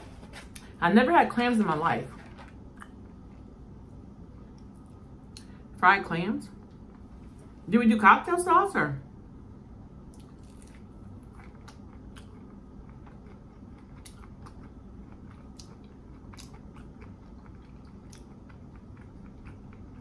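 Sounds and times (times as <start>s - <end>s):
steady low hum: 0.0s - 20.0s
person chewing crispy food: 10.1s - 20.0s.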